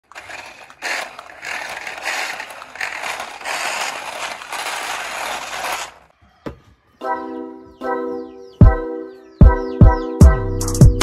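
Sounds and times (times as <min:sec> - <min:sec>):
toy car electric motor whirring: 0:00.0 - 0:06.1.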